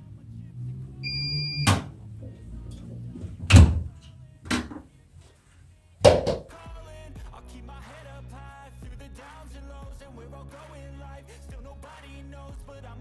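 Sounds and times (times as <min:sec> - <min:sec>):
washing machine electronic beep: 0:01.0 - 0:01.9
washing machine door thuds: 0:03.4 - 0:03.9.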